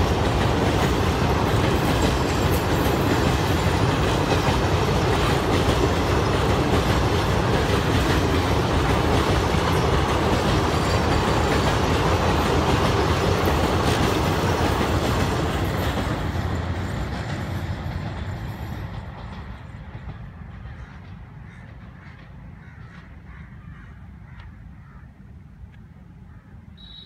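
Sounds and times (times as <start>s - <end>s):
train rolling over bridge: 0.0s - 23.1s.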